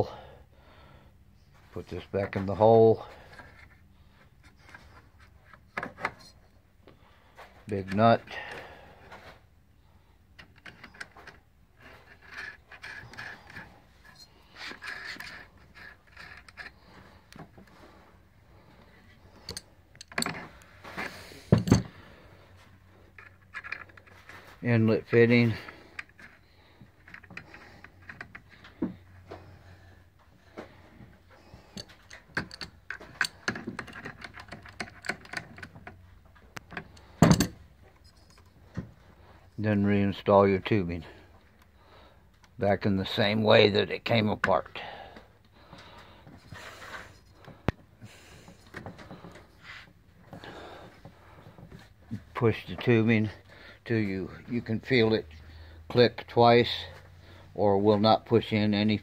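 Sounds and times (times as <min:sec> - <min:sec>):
light metal clicks and scrapes: 0:10.4 - 0:18.0, 0:18.6 - 0:22.0, 0:30.5 - 0:39.6
metal fittings clicking: 0:31.7 - 0:36.0.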